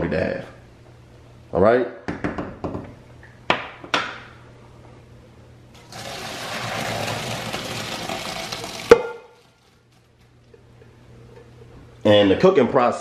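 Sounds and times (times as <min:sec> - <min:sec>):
water splashing into a colander: 0:05.8 - 0:10.2.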